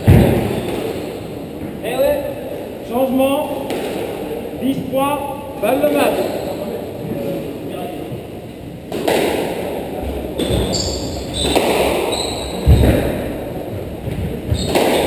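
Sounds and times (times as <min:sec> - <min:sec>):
squash ball thuds: 0:00.0 - 0:01.0, 0:11.3 - 0:15.0
shoes squeaking on wooden floor: 0:10.1 - 0:13.4, 0:14.0 - 0:15.0.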